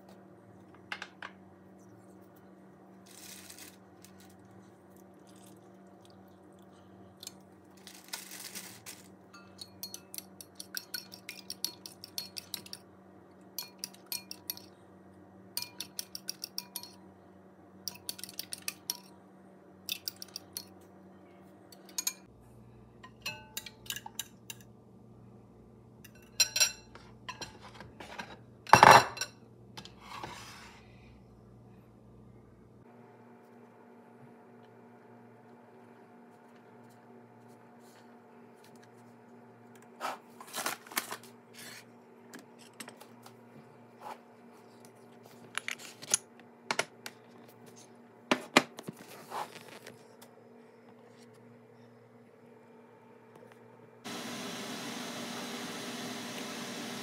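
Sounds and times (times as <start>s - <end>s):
spoon clinking against glass bowl: 9.3s - 12.8s, 13.6s - 14.7s, 15.6s - 17.0s.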